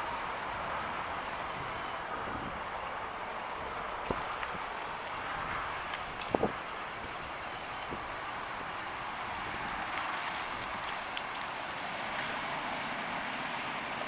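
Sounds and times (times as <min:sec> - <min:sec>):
wind on microphone: 0:01.4 - 0:02.7, 0:03.8 - 0:10.9.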